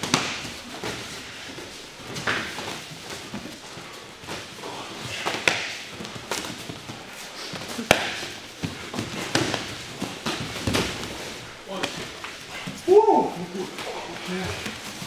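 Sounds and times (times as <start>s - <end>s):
slaps and thuds of strikes: 0.0s - 0.5s, 5.2s - 5.9s, 7.8s - 11.1s
shuffling on mats: 0.0s - 15.0s.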